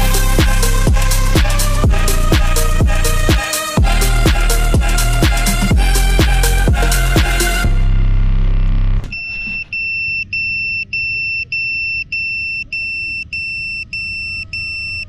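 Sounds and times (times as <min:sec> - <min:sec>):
background music: 0:00.0 - 0:08.3.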